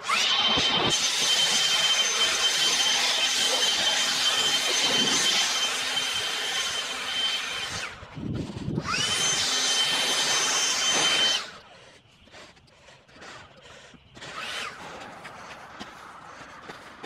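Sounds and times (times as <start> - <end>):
leaf blower whine: 0.0 - 11.7, 14.2 - 15.9.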